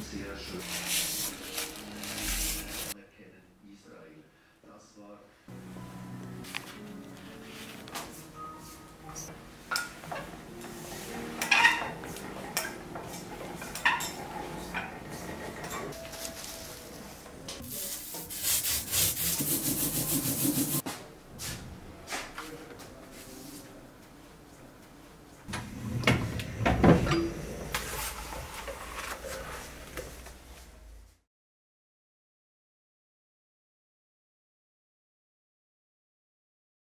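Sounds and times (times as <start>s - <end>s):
paper sliding and rustling: 0.6s - 3.0s, 6.4s - 8.2s, 27.7s - 30.7s
rapid rubbing: 18.0s - 20.8s.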